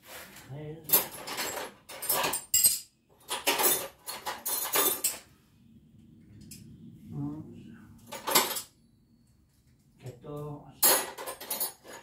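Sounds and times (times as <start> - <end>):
hand tools rattling: 0.8 - 5.2.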